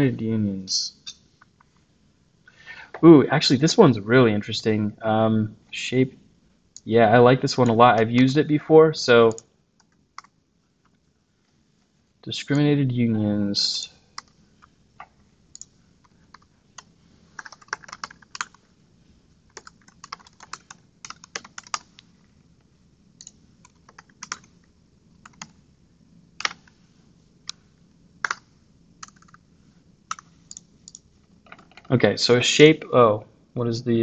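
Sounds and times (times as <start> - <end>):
typing on computer keyboard: 9.3 - 10.4, 15.0 - 18.6, 19.5 - 22.1, 23.2 - 24.6, 25.2 - 25.6, 26.4 - 26.7, 28.2 - 29.4, 30.1 - 31.9.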